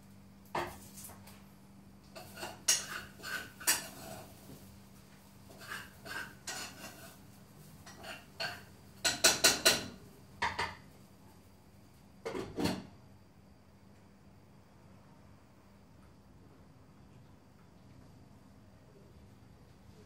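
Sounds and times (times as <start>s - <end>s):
cutlery and dishes clinking: 2.2s - 4.3s, 5.6s - 7.2s.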